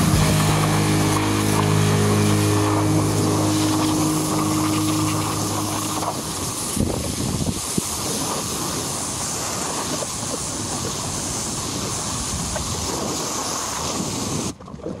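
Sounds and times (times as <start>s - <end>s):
pressure washer spraying water: 0.0s - 6.8s.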